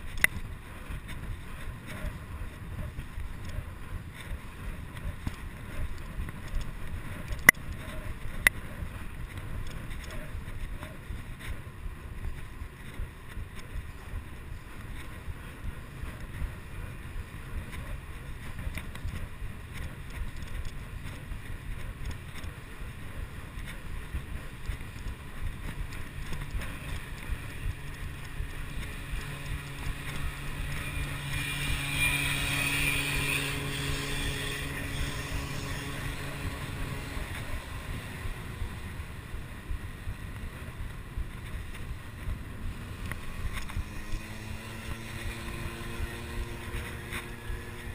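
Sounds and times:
bicycle rumbling on pavement: 0.0 - 47.9
wind buffeting microphone: 0.0 - 47.9
small motor humming: 25.7 - 39.0, 42.6 - 47.9.

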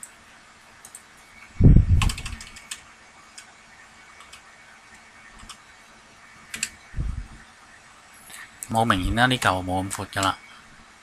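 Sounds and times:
computer mouse clicks: 0.8 - 1.1, 2.0 - 3.5, 4.2 - 5.6, 6.5 - 6.8.

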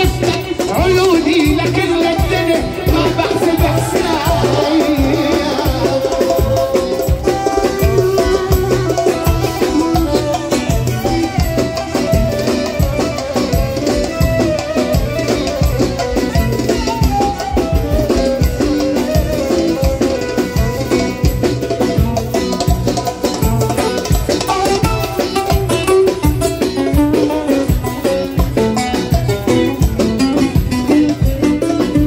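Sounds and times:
dense drum beat: 0.0 - 13.2
electronic keyboards playing: 0.0 - 32.0.

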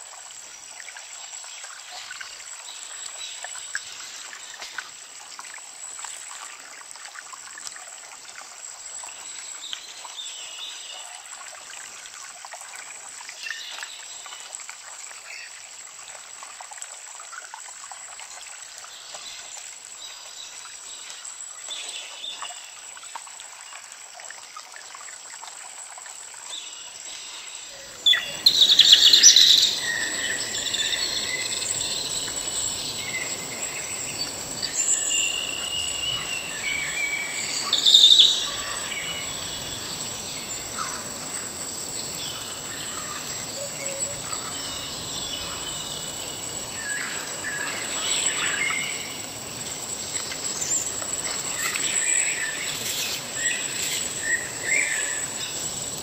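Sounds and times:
falling water: 11.3 - 56.0
high insect trill: 27.2 - 56.0
birds singing and calling: 27.8 - 56.0.

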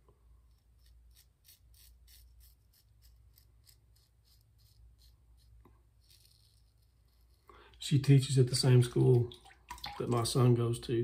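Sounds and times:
razor scraping stubble: 0.4 - 7.5.

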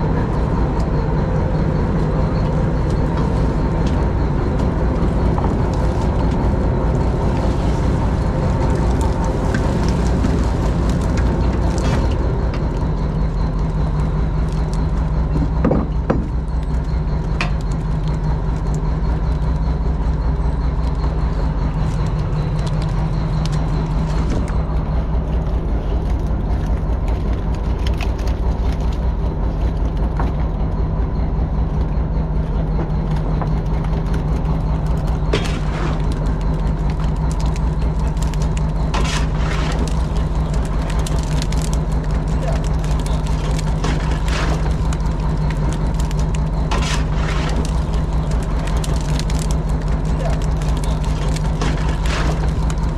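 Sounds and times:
boat engine droning: 0.0 - 52.9
faint constant whine: 0.0 - 52.9.

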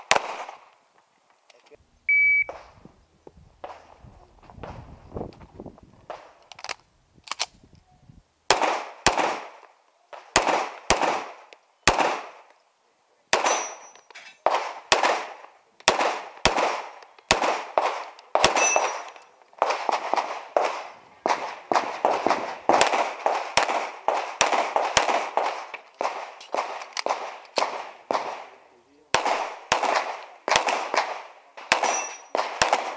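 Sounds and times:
pistol shots: 0.0 - 0.6, 8.5 - 12.5, 13.3 - 32.9.

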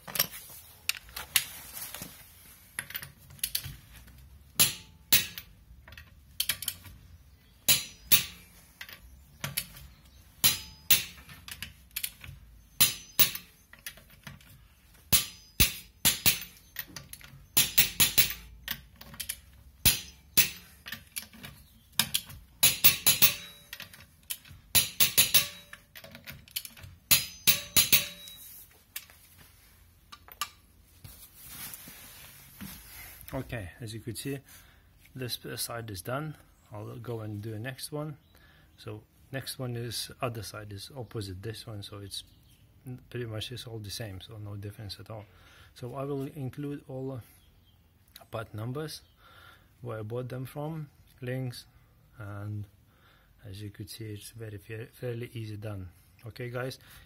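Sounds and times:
hand tool clicking on lug nuts: 4.6 - 7.0, 7.6 - 9.8, 10.4 - 28.4.

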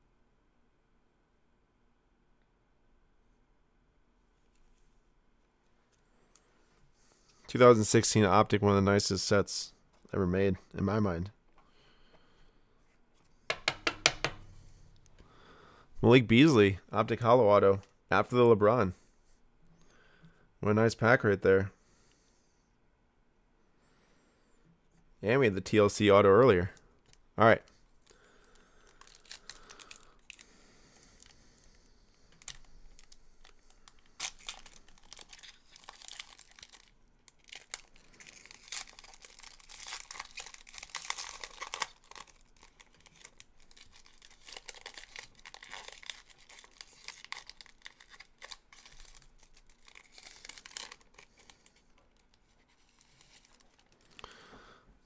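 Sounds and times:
wrapper crinkling and tearing: 28.0 - 54.3
cards being handled: 32.4 - 54.2.

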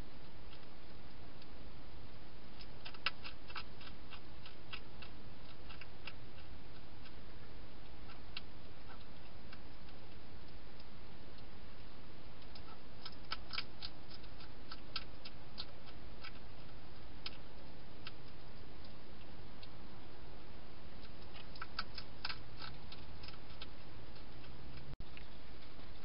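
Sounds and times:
hedgehog eating clicks: 2.6 - 7.2, 7.8 - 11.5, 12.4 - 19.8, 21.0 - 26.0.

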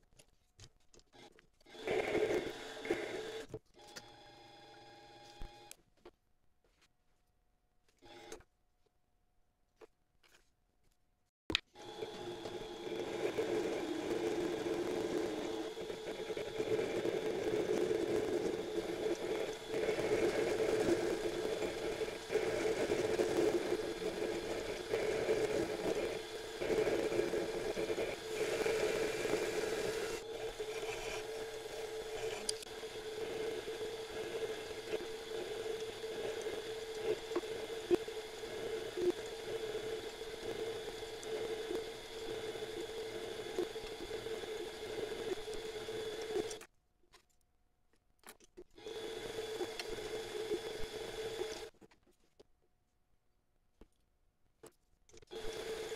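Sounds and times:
lathe humming: 11.8 - 46.6.

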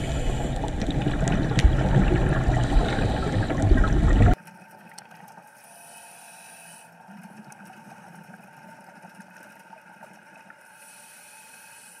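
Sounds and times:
low underwater drone: 0.0 - 12.0
small clicks and crackles: 7.0 - 12.0.

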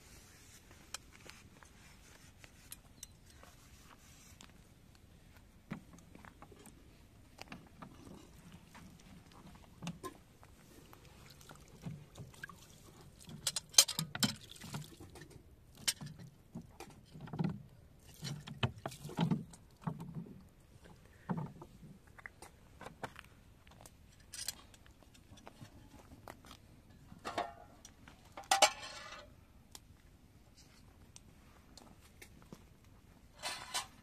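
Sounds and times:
metal scraping on gravel: 28.4 - 29.3, 33.4 - 34.0.

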